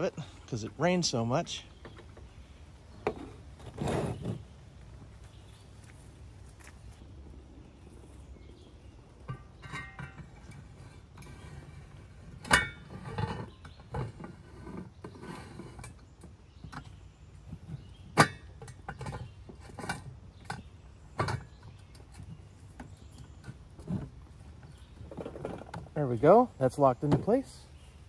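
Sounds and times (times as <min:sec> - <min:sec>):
metal bowl scraping and rattling: 0:09.2 - 0:16.1.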